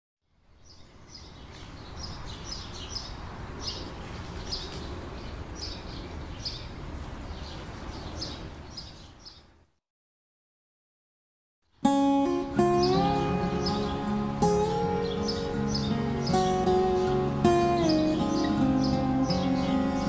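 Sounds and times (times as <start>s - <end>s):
small birds chirping: 0.3s - 9.6s, 11.8s - 20.0s.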